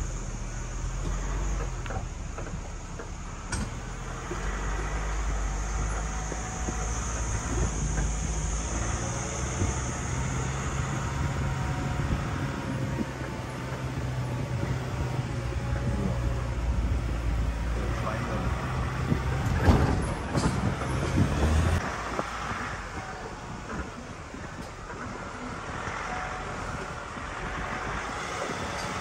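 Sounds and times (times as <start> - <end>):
wind on microphone: 4.2 - 29.0.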